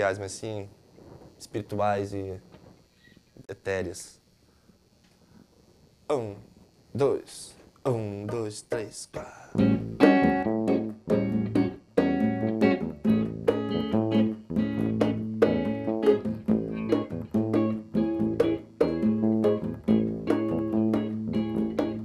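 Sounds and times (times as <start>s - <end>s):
congas: 5.6s - 22.0s
electric guitar: 9.5s - 22.0s
electric bass: 9.6s - 22.0s.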